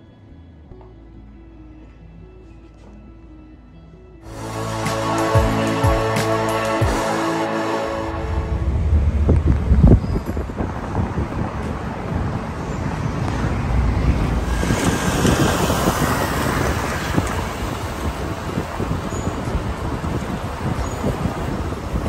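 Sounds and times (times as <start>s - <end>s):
passing road traffic: 4.2s - 22.0s
wind rumbling on microphone: 8.1s - 22.0s.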